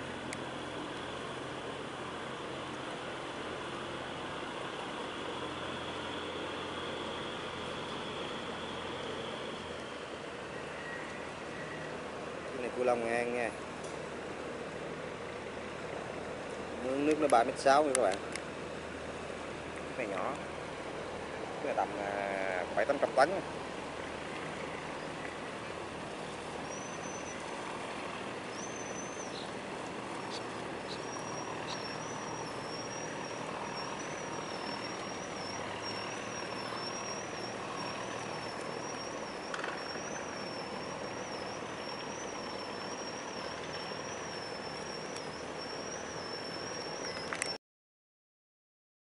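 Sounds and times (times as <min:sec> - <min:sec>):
high wavering whine: 0:00.0 - 0:13.8, 0:19.4 - 0:47.6
diesel engine rumble: 0:00.0 - 0:47.6
water noise: 0:00.0 - 0:47.6.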